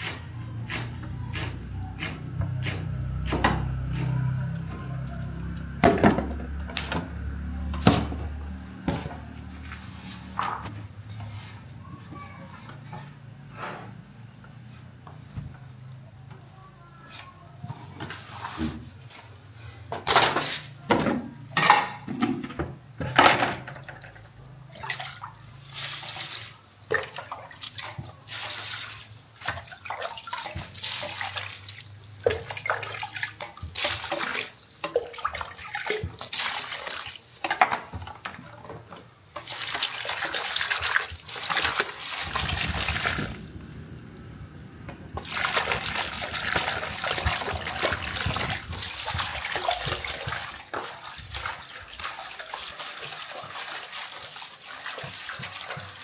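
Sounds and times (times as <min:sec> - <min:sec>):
water splashing and pouring: 0:23.8 - 0:56.0.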